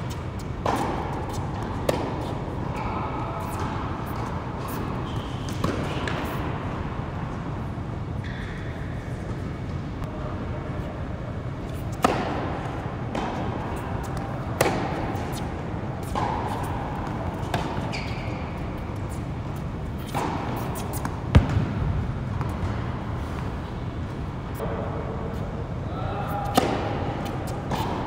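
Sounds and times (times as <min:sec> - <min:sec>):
tennis ball hit by racquet: 0:00.6 - 0:02.8, 0:03.4 - 0:06.5, 0:11.7 - 0:18.1, 0:20.0 - 0:22.8, 0:26.5 - 0:28.0.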